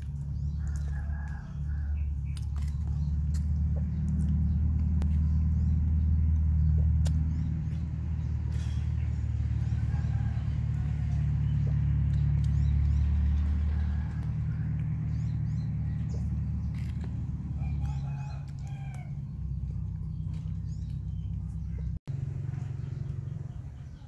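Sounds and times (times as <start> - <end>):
small birds chirping: 0.0 - 24.0
steady low rumble: 0.0 - 24.0
rooster crowing: 0.6 - 2.1, 9.6 - 11.4, 13.6 - 14.8, 17.5 - 19.2.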